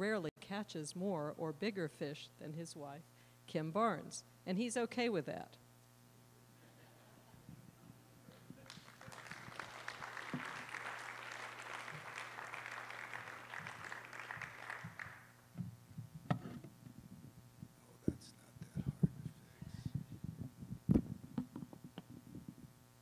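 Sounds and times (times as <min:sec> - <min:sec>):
audience applauding: 0:08.6 - 0:15.3.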